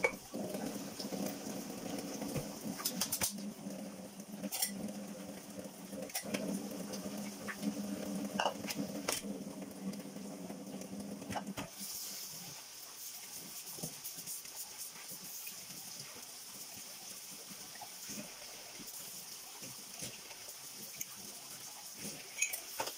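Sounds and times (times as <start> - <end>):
tap water running: 0.0 - 22.9
sponge scrubbing dishes: 6.0 - 9.3.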